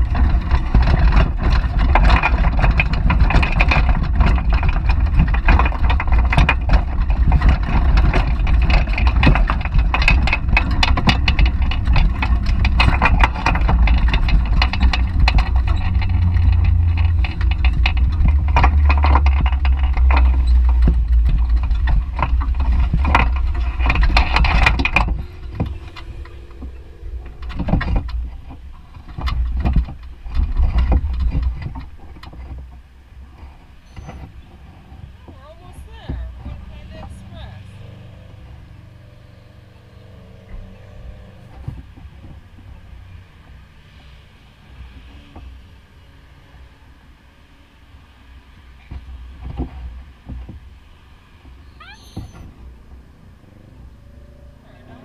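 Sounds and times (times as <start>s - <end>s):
low rumble: 0.0s - 43.6s
wind buffeting microphone: 0.0s - 43.6s
bicycle rattles and clicks: 0.0s - 44.1s, 48.4s - 55.0s
street noise: 0.0s - 55.0s.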